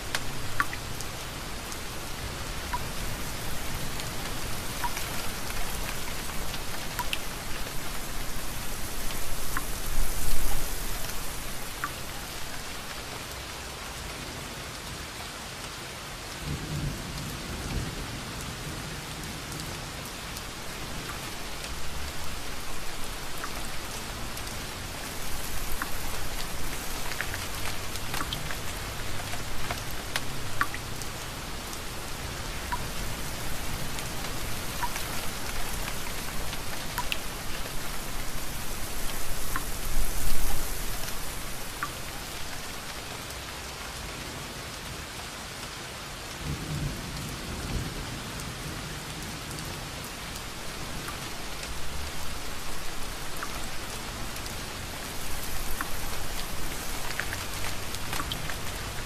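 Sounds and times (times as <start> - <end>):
rain drop ticks: 0.0 - 13.5, 19.5 - 43.4, 50.4 - 59.0
steady rain: 0.0 - 59.0.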